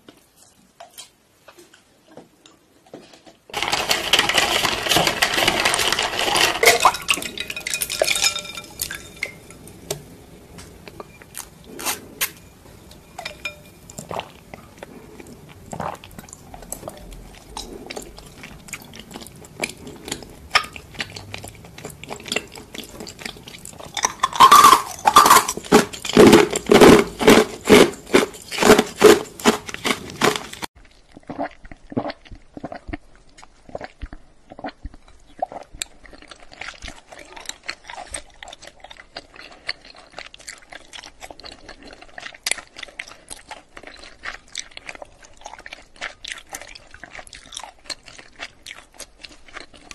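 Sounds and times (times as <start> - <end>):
chewing tapioca pearls: 10.6 - 49.9.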